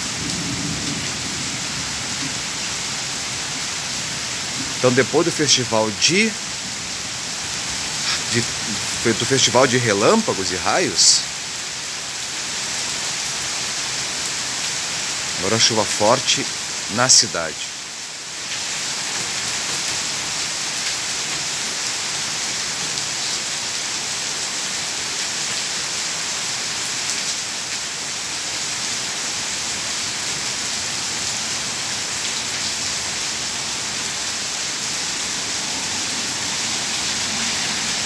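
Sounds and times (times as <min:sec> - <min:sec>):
heavy rain on pavement: 0:00.0 - 0:38.0.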